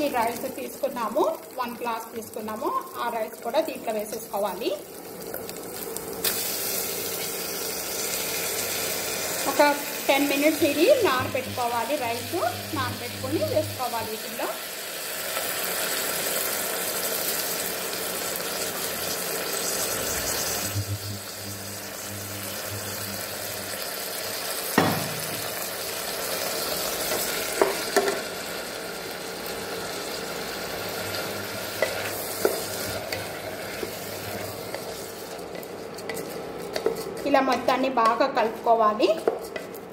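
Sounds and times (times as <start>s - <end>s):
food sizzling in a pot: 0.0s - 39.9s.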